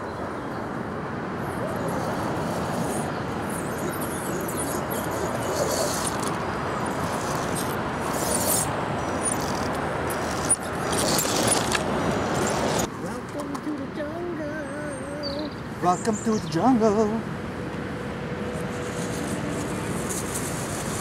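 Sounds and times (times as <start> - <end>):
small electric motor and gears: 1.8 - 12.9, 18.5 - 21.0
soil and stones crackling under tyres: 1.8 - 13.9, 18.5 - 21.0.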